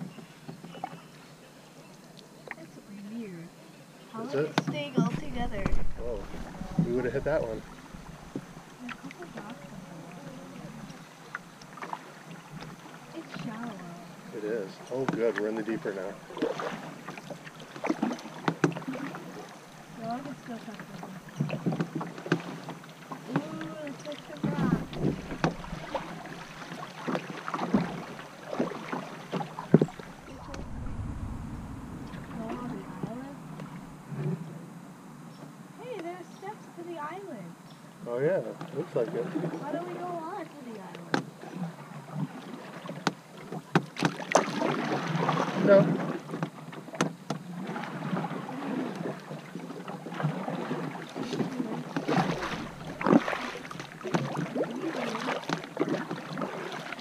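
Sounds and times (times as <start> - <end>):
paddles pulling through water: 0.0 - 34.8, 35.4 - 57.0
paddles knocking canoe hull: 20.0 - 30.6, 49.8 - 57.0
knocks on canoe: 24.4 - 26.1, 43.0 - 44.5, 45.8 - 47.4.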